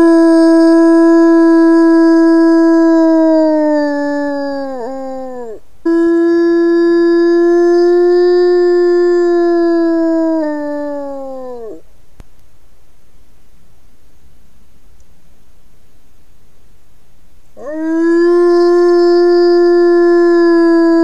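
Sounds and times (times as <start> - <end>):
wolf howling: 0.0 - 11.8, 17.6 - 21.0.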